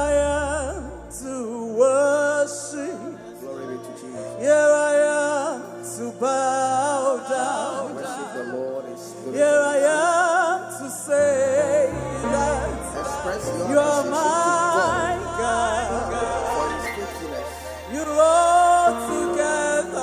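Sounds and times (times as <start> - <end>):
bass line: 0.0 - 1.5, 11.8 - 20.0
keyboard: 0.0 - 20.0
singers holding wavering notes: 11.2 - 20.0.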